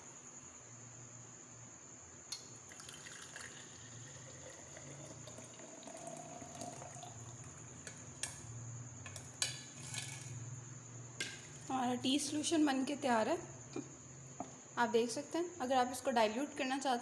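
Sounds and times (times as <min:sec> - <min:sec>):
tea trickling into a glass jar: 0:02.3 - 0:07.9.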